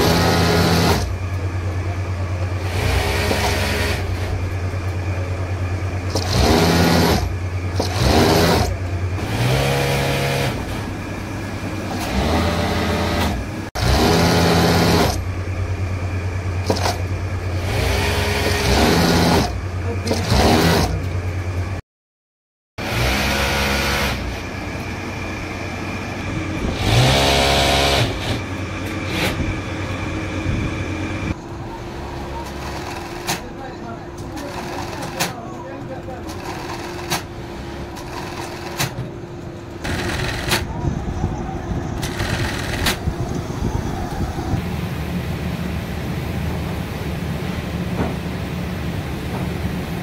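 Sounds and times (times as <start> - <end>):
sewing machine running: 0.0 - 1.2, 2.6 - 4.4, 6.0 - 10.8, 11.8 - 15.3, 16.6 - 21.1, 26.7 - 29.4, 31.9 - 33.5, 34.3 - 35.4, 36.1 - 39.0, 39.8 - 40.7, 42.0 - 43.0
low machine hum: 0.0 - 6.2, 14.4 - 20.2, 24.2 - 50.0.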